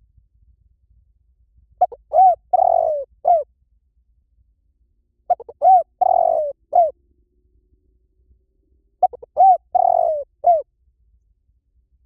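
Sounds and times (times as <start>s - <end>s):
dove cooing: 1.8s - 3.5s, 5.3s - 7.0s, 9.0s - 10.6s.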